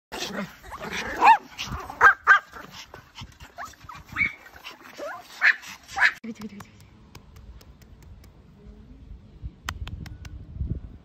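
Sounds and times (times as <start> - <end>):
small dogs yipping and whining: 0.6 - 6.2.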